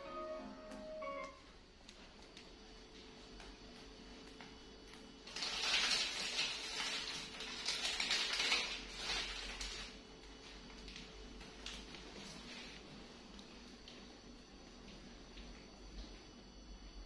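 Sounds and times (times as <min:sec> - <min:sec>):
plastic packaging crinkling: 0:04.8 - 0:12.8.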